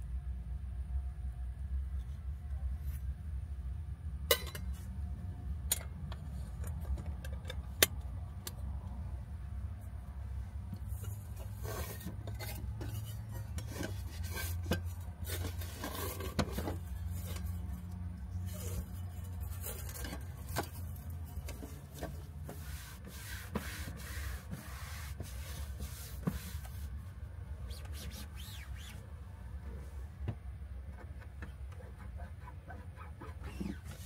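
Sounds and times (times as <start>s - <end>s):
paper towel wiping table: 21.6s - 26.9s.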